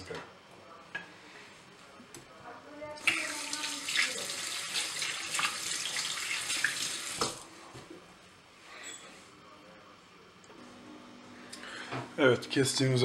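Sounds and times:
tap water running into sink: 3.0 - 7.4.

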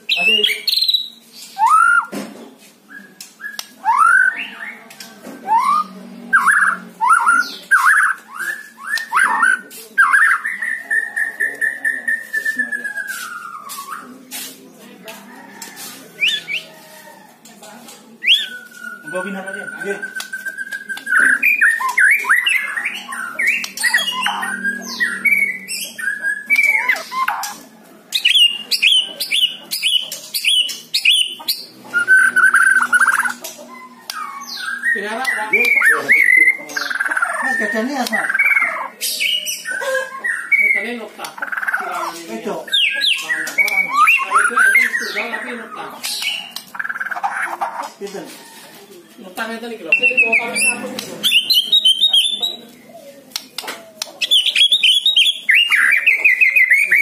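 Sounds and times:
bird singing whistled phrases: 0.1 - 2.1, 2.9 - 4.8, 5.4 - 14.0, 18.2 - 27.6, 28.2 - 40.8, 54.2 - 57.0.

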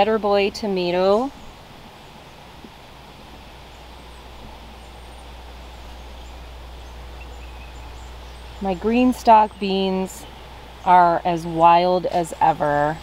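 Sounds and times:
faint bird chirps: 3.7 - 8.8.

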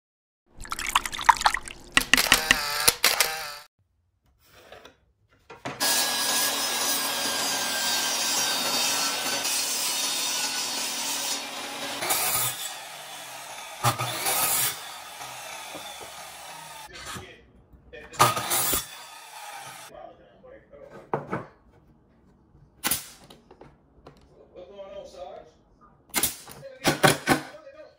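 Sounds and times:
power saw cutting wood: 2.1 - 3.7, 5.8 - 17.0, 18.2 - 19.9.

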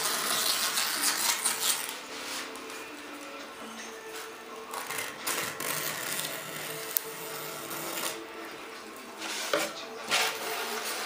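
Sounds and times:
razor blade scraping fiberglass: 0.0 - 2.6, 4.7 - 8.2.

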